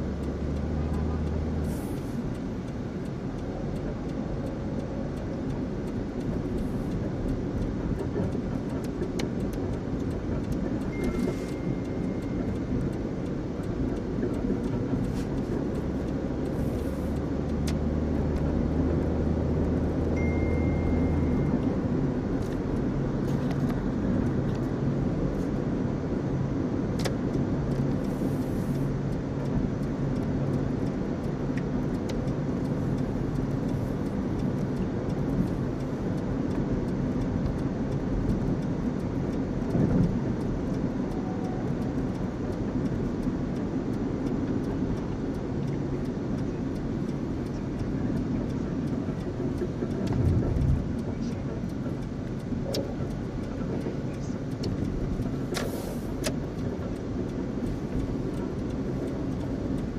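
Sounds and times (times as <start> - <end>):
car cabin road and engine noise: 0.0 - 59.9
short high beeps: 20.2 - 21.7.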